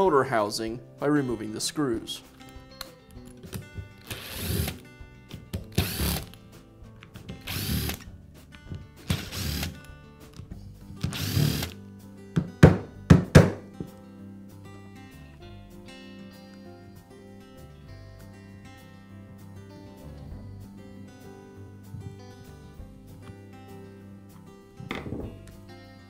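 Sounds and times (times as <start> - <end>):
power screwdriver whirring: 4.0 - 4.8, 5.7 - 6.4, 7.4 - 8.0, 9.0 - 9.8, 11.0 - 11.8
sharp knocks: 12.4 - 13.7.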